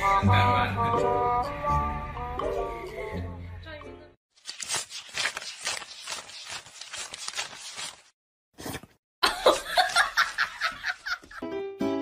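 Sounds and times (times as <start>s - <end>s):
banknotes rustling being counted: 4.4s - 8.2s
burst of laughter: 9.2s - 11.4s.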